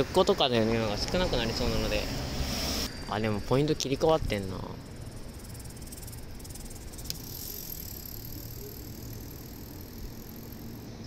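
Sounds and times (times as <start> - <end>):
low steady rumble: 0.0 - 11.0
insects chirping: 0.2 - 11.0
sharp click: 7.0 - 7.2.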